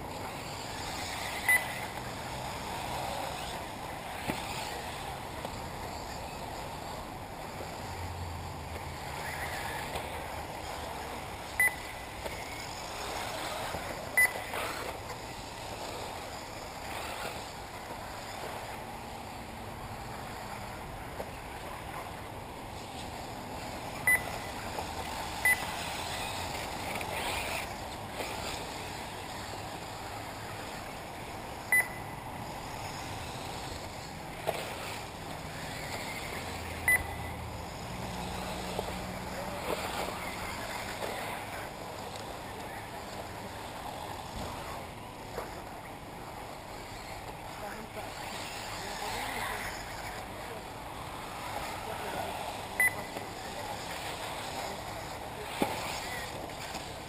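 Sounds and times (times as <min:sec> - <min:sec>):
rc cars running: 0:00.0 - 0:57.0
short high beeps: 0:01.3 - 0:01.8, 0:11.6 - 0:12.0, 0:14.2 - 0:14.5, 0:24.0 - 0:24.5, 0:25.4 - 0:25.8, 0:31.6 - 0:32.1, 0:36.8 - 0:37.4, 0:52.8 - 0:53.2.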